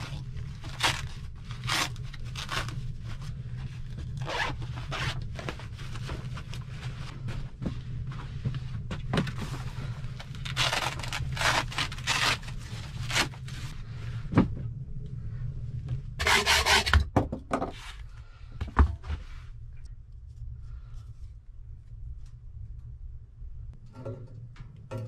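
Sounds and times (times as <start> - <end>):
clothes and boots rustling: 2.3 - 14.6.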